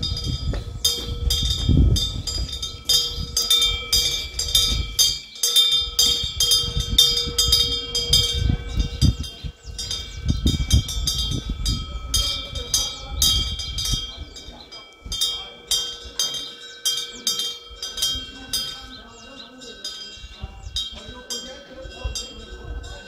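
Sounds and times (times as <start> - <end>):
wind rumble on microphone: 0.0 - 5.2, 5.8 - 15.5, 20.1 - 23.0
wind bell ringing: 0.0 - 23.0.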